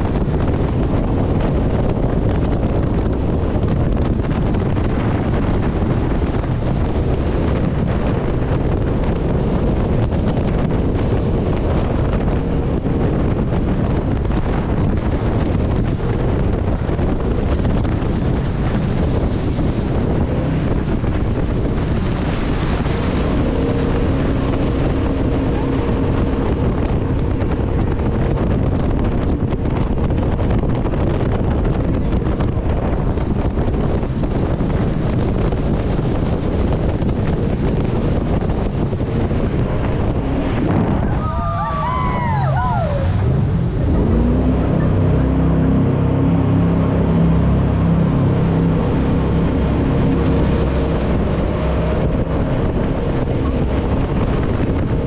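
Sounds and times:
jet boat engine: 0.0 - 55.0
rushing water: 0.0 - 55.0
wind buffeting microphone: 0.0 - 55.0
falling whine: 39.6 - 46.6.

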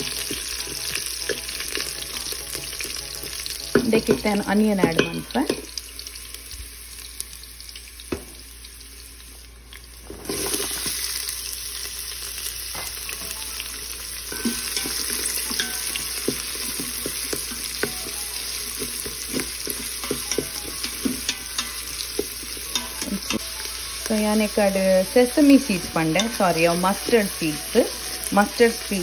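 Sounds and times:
onion frying with loud sizzle: 0.0 - 29.0
spices sizzling in hot ghee: 0.0 - 29.0
wooden spoon scraping pot: 14.4 - 23.4.

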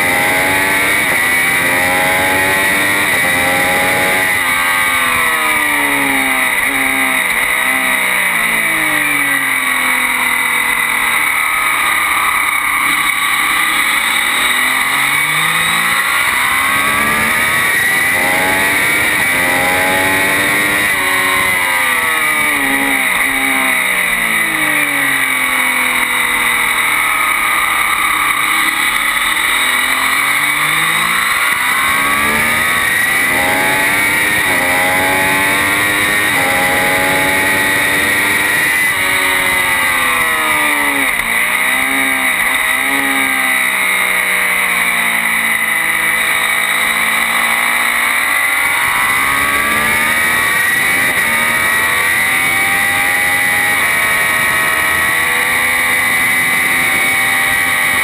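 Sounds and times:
motorcycle engine at full throttle: 0.0 - 58.0.

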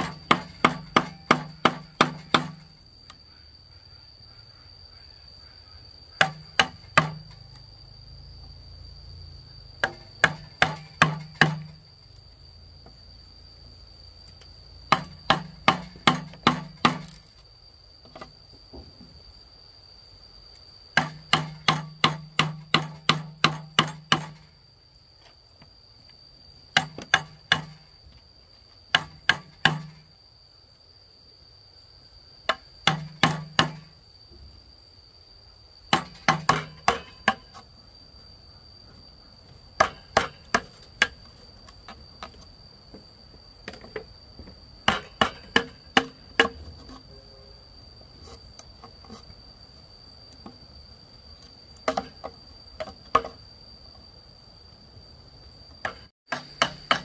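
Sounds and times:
high insect drone: 0.0 - 57.0
hammer striking chisel: 9.8 - 11.7, 14.9 - 17.1, 21.0 - 24.4, 35.9 - 37.5, 55.8 - 57.0.

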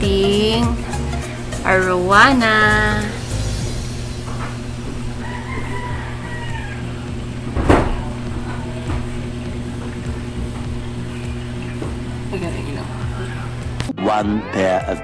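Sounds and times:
low hum: 0.0 - 14.0
rooster crowing: 4.3 - 8.8.

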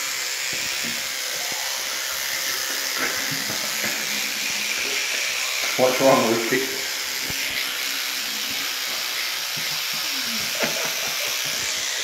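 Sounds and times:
electric toothbrush scrubbing teeth: 0.0 - 12.0.

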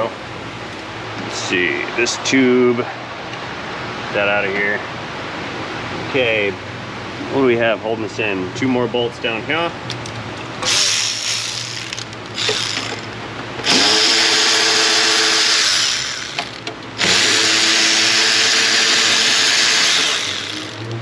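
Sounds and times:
power tool motor whine: 10.6 - 21.0.

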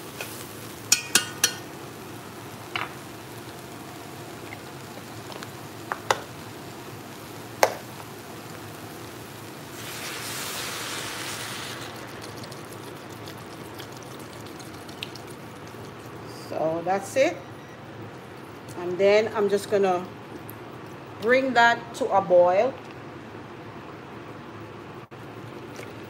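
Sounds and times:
vegetables sizzling in a pot: 0.0 - 17.3.

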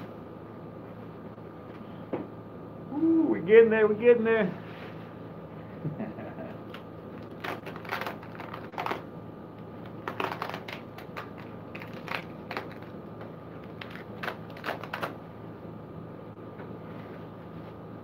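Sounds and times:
steady low hum: 0.0 - 18.0
packing material crinkling: 6.7 - 9.1, 9.8 - 15.2.

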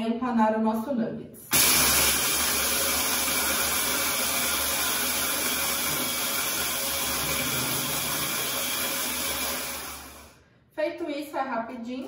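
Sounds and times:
hand blender grinding cornflakes: 1.5 - 10.3.

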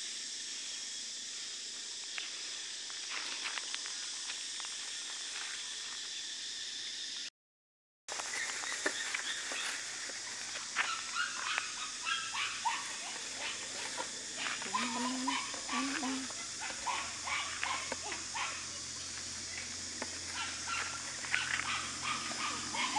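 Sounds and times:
steady high hiss: 0.0 - 5.1.

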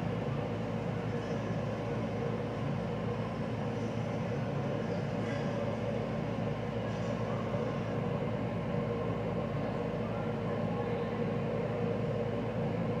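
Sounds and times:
mechanical drone with low hum: 0.0 - 13.0.

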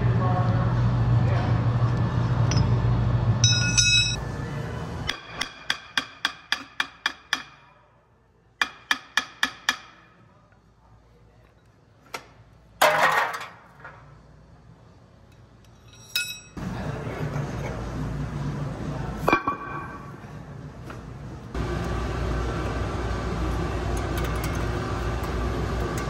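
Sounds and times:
hammer striking steel: 3.4 - 4.2, 5.1 - 7.8, 8.6 - 10.2.

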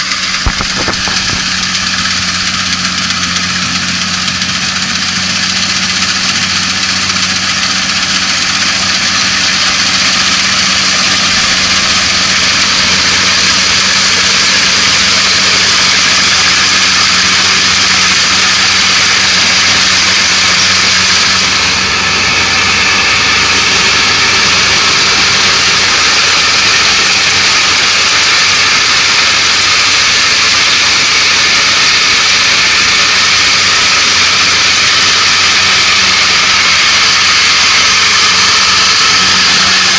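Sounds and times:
diesel engine hum: 0.0 - 39.9
harvester machinery rushing: 0.0 - 39.9.

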